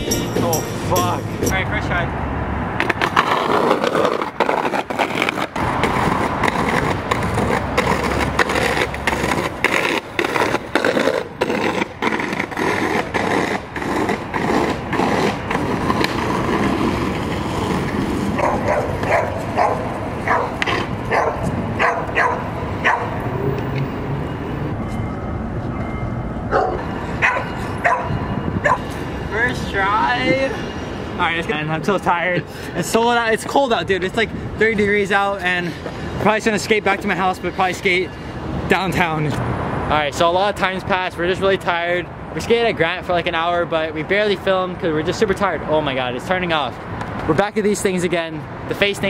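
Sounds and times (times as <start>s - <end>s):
skateboard wheels rolling on concrete: 0.0s - 49.0s
skateboard clacking on ground: 2.8s - 23.9s.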